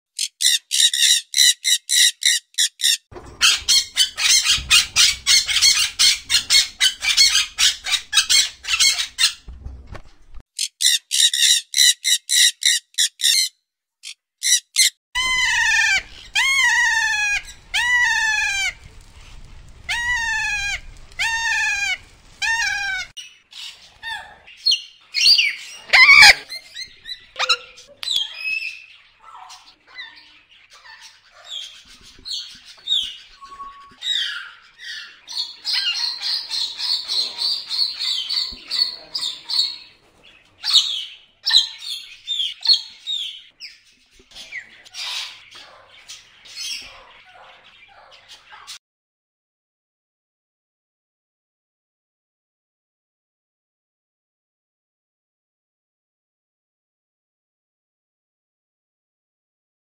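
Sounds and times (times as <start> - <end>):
loud parrot squawk: 0.2 - 9.4, 10.6 - 18.9, 19.9 - 39.9, 40.6 - 43.3
parrot clicking chatter: 0.2 - 9.4, 10.6 - 18.8, 25.9 - 26.6
parrot calls falling in pitch: 14.4 - 19.0, 19.9 - 23.1, 25.8 - 28.7.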